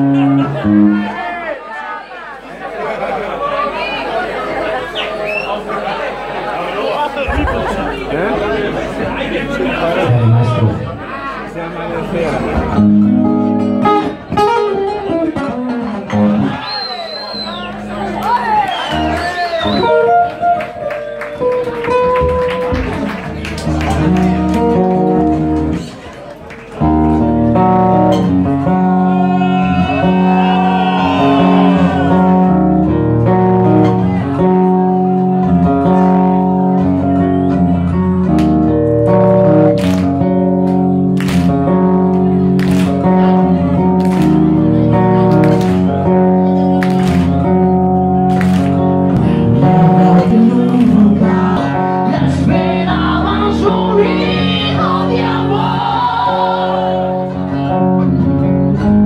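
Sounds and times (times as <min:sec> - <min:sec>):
acoustic-electric guitar strumming chords: 0:00.0 - 0:01.2, 0:12.6 - 0:16.6, 0:26.8 - 0:59.0
bass: 0:00.0 - 0:01.2, 0:07.3 - 0:26.0, 0:26.6 - 0:59.0
man singing: 0:49.6 - 0:55.7.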